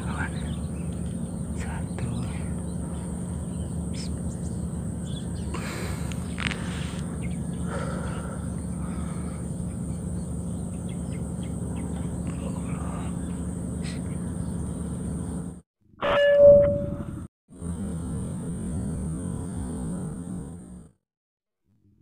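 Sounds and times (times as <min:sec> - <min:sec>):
bird chirps: 0:00.0 - 0:15.4
insects: 0:00.0 - 0:15.6
steady low hum: 0:00.0 - 0:15.6, 0:16.4 - 0:20.9.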